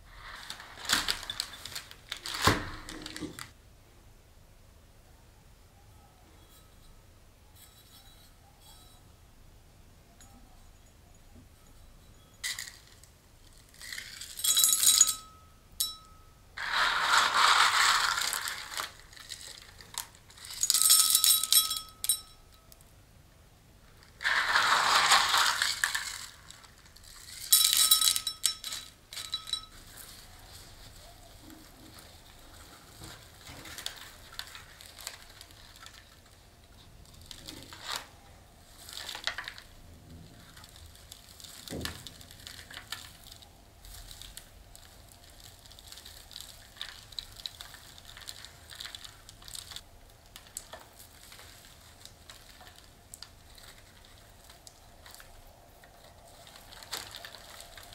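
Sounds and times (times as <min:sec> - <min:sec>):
soft soil rustles: 0:00.0 - 0:02.4, 0:16.0 - 0:20.7, 0:29.0 - 0:57.9
ceramic pot ringing: 0:14.4 - 0:16.6, 0:20.8 - 0:22.8
gritty soil scraping: 0:16.6 - 0:20.7, 0:24.1 - 0:27.5.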